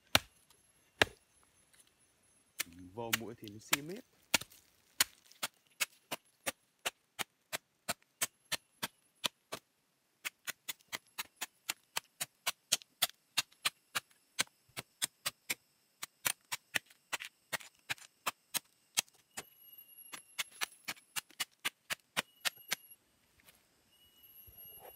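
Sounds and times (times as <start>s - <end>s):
machete chopping fern root: 0.1s - 0.3s, 1.0s - 1.2s, 2.6s - 9.6s.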